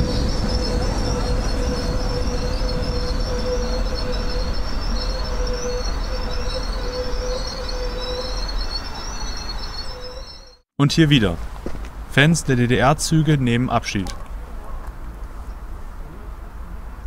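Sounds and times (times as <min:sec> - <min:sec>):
high-pitched wheel squeal: 0:00.0 - 0:10.6
electric train rumbling: 0:00.0 - 0:17.0.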